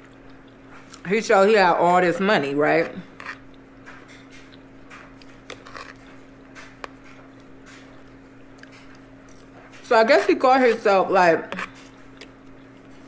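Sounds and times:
chewing food: 0.0 - 1.1, 2.8 - 9.9, 11.5 - 13.0.

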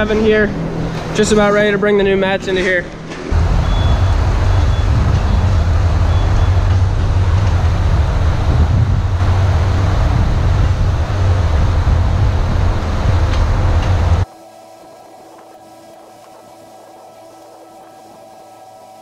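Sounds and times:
diesel engine low drone: 3.3 - 17.8.

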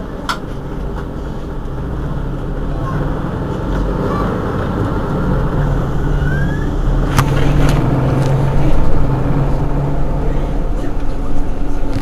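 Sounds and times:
bus engine drone: 0.0 - 12.0
short rising whine: 4.0 - 10.8.

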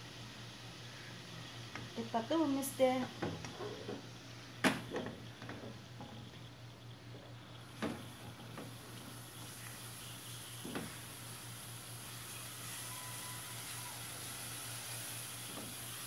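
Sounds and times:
light sizzle in pot: 0.0 - 16.0.

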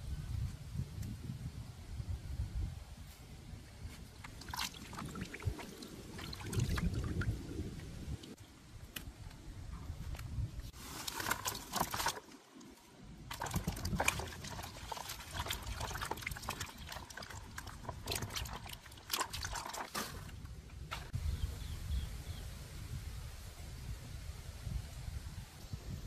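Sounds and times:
water sloshing and splashing: 4.0 - 8.4, 10.7 - 21.2.

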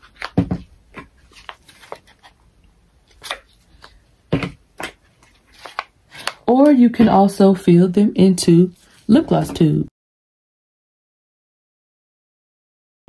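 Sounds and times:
items knocking on a table: 0.4 - 0.7, 4.3 - 4.6.

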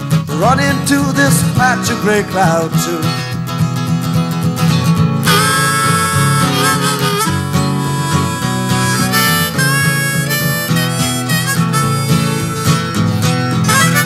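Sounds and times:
strummed acoustic guitar: 0.0 - 14.0
harmonica with bending notes: 5.1 - 14.0.

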